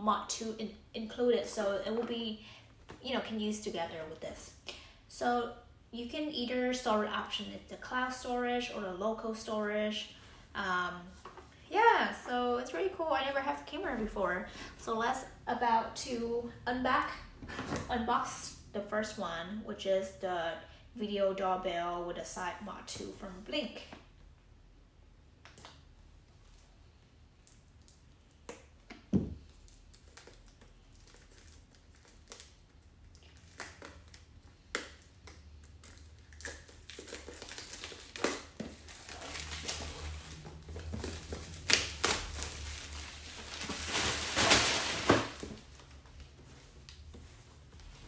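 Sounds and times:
packaging rustling and crinkling: 0:29.4 - 0:48.0.

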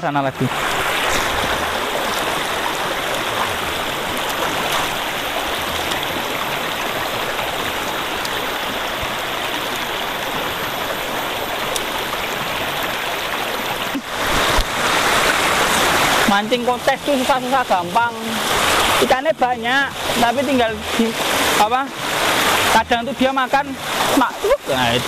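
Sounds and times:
stream rushing over stones: 0:00.0 - 0:25.0.

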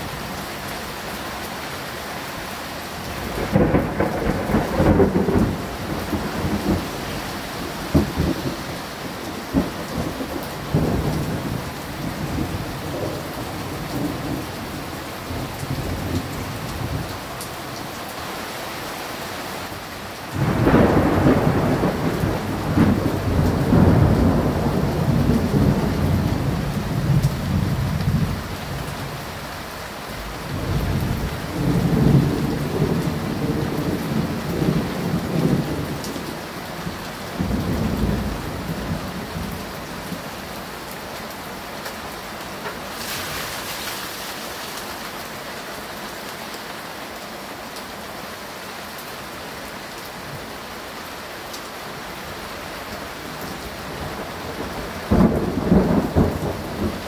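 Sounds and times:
steady rain: 0:00.0 - 0:57.0
thunder rolling: 0:03.2 - 0:17.1, 0:20.4 - 0:28.4, 0:54.0 - 0:57.0.

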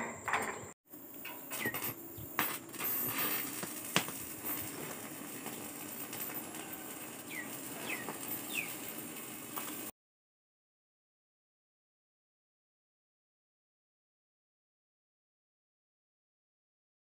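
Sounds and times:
bird chirping: 0:00.0 - 0:02.4, 0:07.2 - 0:08.8
welding arc crackle: 0:00.9 - 0:09.9.

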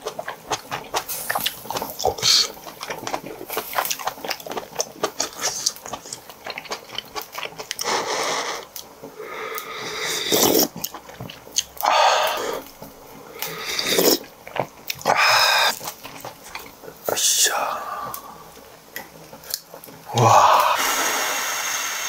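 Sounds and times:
wet chewing and mouth clicks: 0:00.0 - 0:20.3
slurps from a spoon: 0:09.8 - 0:11.0, 0:13.4 - 0:14.3.

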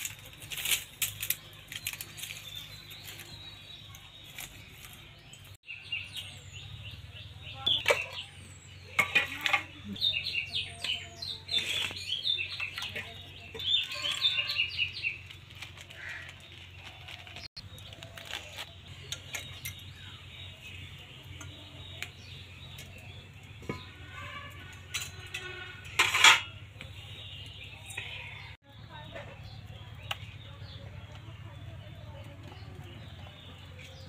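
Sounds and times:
small birds chirping: 0:00.0 - 0:34.0
metal cookware clinking: 0:07.7 - 0:11.6, 0:22.6 - 0:26.8.

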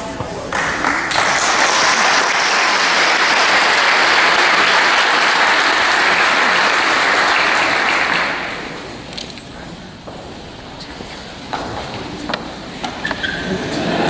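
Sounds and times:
audience applauding: 0:00.5 - 0:08.9.

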